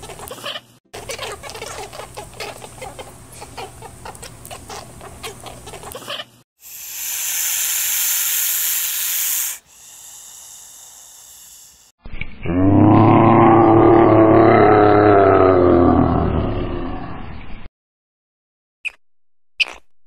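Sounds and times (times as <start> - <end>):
lizard hissing: 6.6 - 11.9
short clicks and squeaky calls: 19.6 - 19.9.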